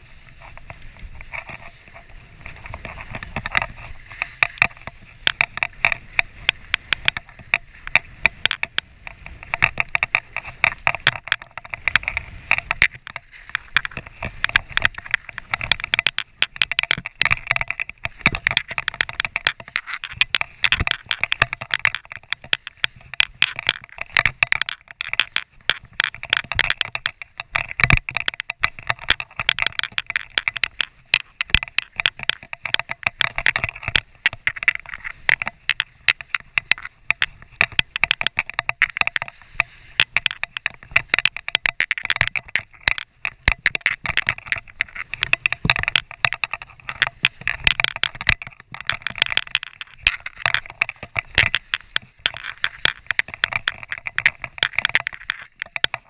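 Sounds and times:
skis scraping over snow: 0.0 - 15.6, 19.2 - 20.7, 34.0 - 36.3, 39.3 - 40.6.

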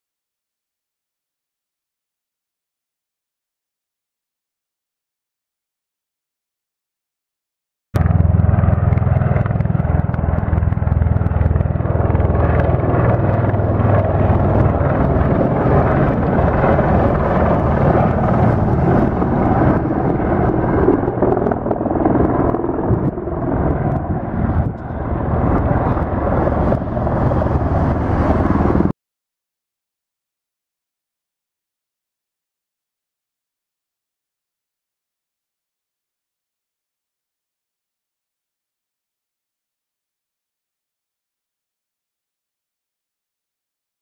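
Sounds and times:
heavy rotor chop: 8.0 - 28.9
turbine noise: 8.0 - 28.9.

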